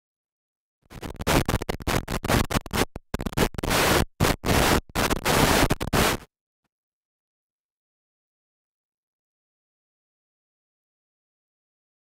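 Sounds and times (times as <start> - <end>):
harsh choppy noise bursts: 0.9 - 6.3.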